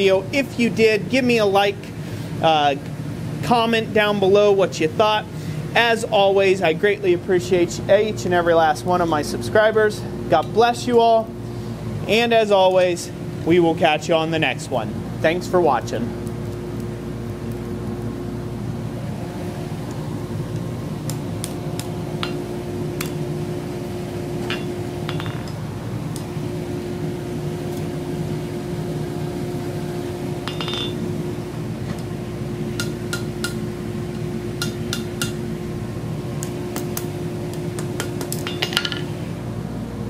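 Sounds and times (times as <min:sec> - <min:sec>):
steady background hum: 0:00.0 - 0:40.0
hammer striking steel on anvil: 0:22.2 - 0:22.4, 0:24.4 - 0:25.6, 0:30.4 - 0:31.0, 0:32.8 - 0:33.6, 0:34.6 - 0:35.4, 0:37.8 - 0:39.1.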